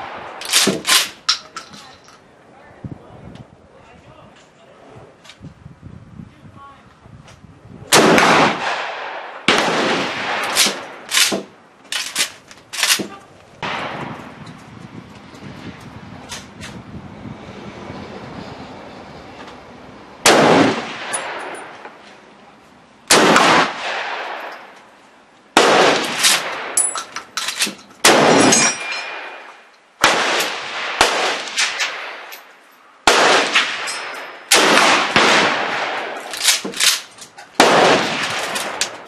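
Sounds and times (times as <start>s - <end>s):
shotgun shots echoing: 7.9s - 11.5s, 12.8s - 14.1s, 20.2s - 21.7s, 23.1s - 24.5s, 25.6s - 26.8s, 28.0s - 32.3s, 33.0s - 37.0s, 37.6s - 39.0s.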